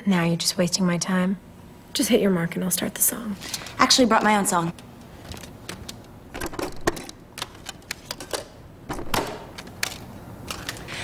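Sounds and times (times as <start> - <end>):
plastic clicks of cd case: 5.3 - 10.9.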